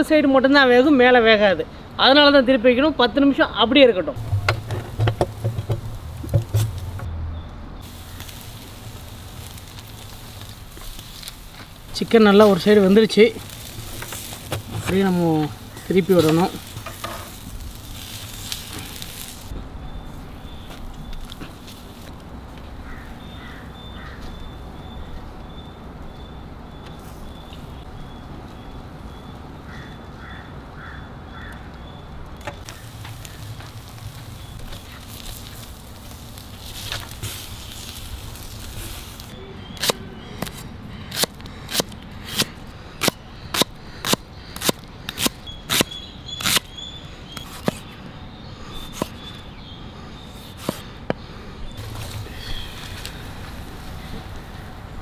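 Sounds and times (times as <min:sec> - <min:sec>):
crows cawing faintly: 0:22.6 - 0:25.6, 0:29.2 - 0:32.0, 0:40.2 - 0:45.2.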